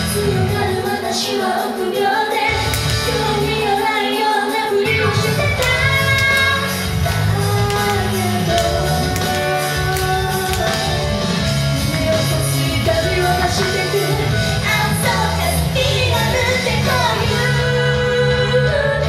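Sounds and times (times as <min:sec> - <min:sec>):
woman singing into a microphone: 0:00.0 - 0:19.0
instrumental backing with beat: 0:01.7 - 0:03.8, 0:05.1 - 0:16.2.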